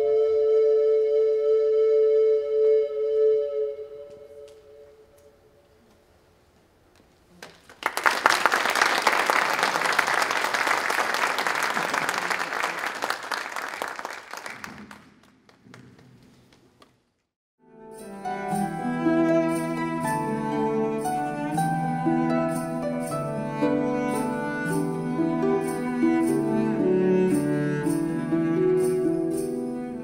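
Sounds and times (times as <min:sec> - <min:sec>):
audience applauding: 0:07.3 - 0:17.0
background music: 0:17.6 - 0:30.0.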